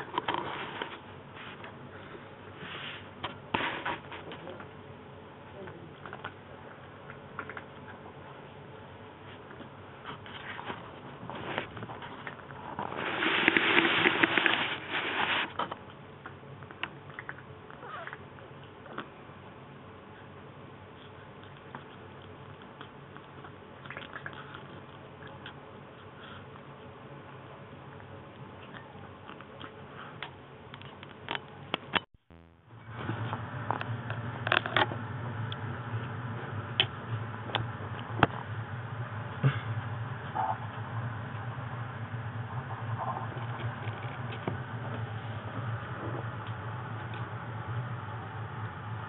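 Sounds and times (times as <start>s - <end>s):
steady low hum: 0.0s - 49.0s
kittens chewing and licking: 6.0s - 31.8s.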